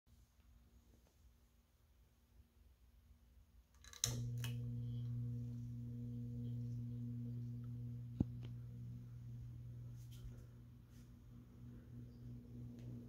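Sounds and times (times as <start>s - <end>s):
ceiling fan motor humming: 3.9s - 13.0s.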